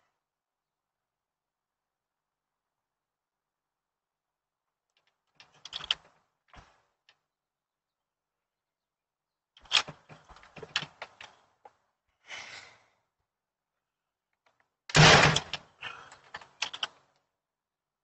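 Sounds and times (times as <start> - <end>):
door lock clicking and rattling: 5.4 - 6.1, 16.2 - 17.0.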